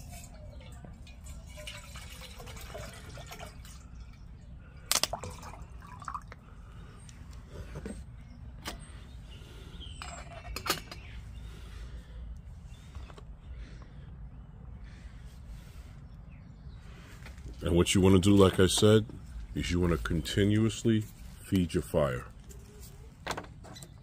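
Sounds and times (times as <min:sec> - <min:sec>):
water pouring into metal cup: 0:01.0 - 0:04.1, 0:05.1 - 0:06.4.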